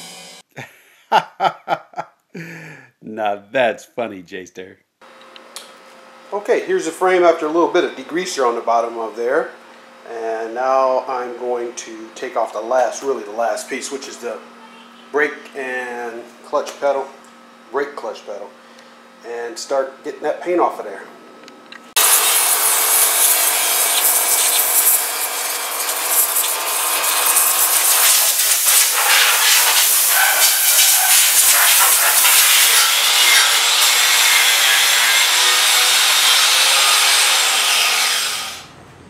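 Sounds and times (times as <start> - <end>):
power tool scouring paint off steel: 22.0 - 38.7.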